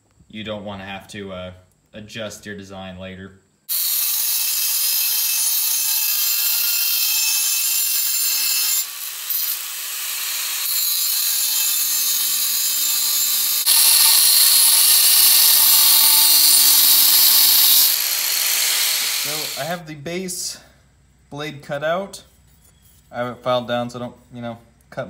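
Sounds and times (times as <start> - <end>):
angle grinder cutting steel: 3.7 - 19.8.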